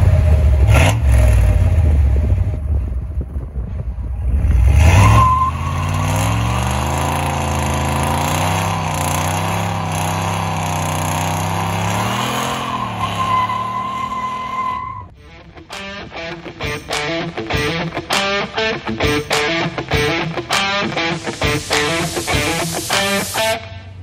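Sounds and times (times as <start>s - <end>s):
car engine revving: 0.0s - 2.5s, 4.1s - 15.1s, 19.9s - 24.0s.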